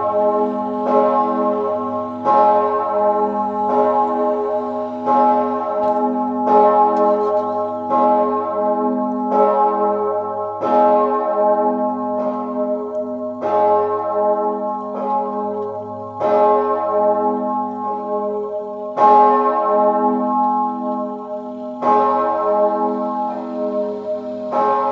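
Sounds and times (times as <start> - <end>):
large church bell tolling: 0.0 - 24.9.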